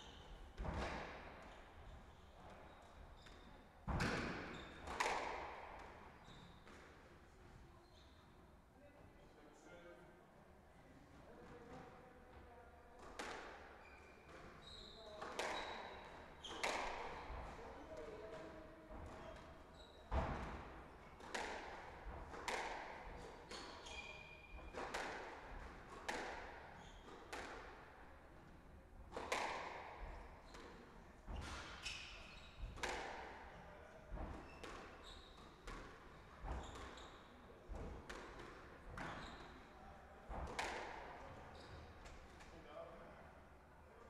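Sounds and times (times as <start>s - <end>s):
squash ball hitting rackets and walls: 0.6s - 1.4s, 3.9s - 6.9s, 13.0s - 13.7s, 14.3s - 19.5s, 20.1s - 28.5s, 29.1s - 32.0s, 32.6s - 33.5s, 34.1s - 39.4s, 40.3s - 41.1s.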